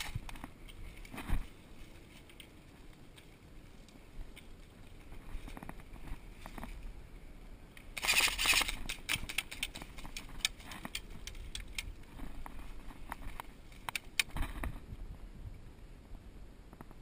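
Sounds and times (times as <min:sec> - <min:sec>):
airsoft gunfire burst: 0:08.0 - 0:08.8
sharp clicks and taps: 0:13.1 - 0:14.5.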